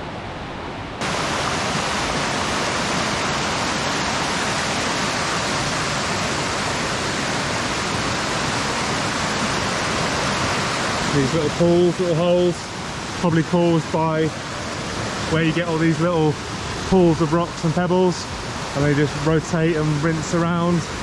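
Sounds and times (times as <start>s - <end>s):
river rushing over rocks: 0.1s - 21.0s.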